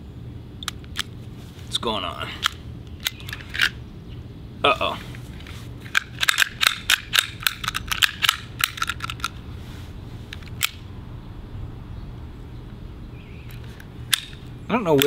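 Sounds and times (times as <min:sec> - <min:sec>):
air pistol mechanism clicking: 0:00.6 - 0:01.2, 0:02.4 - 0:03.8, 0:05.8 - 0:09.4, 0:10.3 - 0:10.9, 0:13.4 - 0:15.0.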